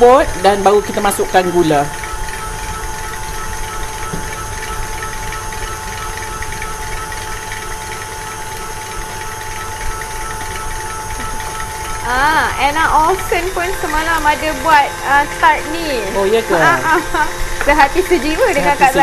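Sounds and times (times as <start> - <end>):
electric hand mixer whining: 0.0 - 19.0.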